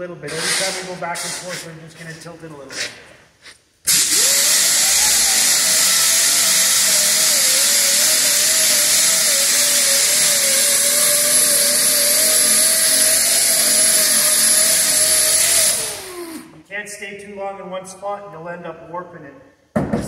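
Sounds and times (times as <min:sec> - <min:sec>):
rotary sander whining on metal: 0:04.1 - 0:16.4.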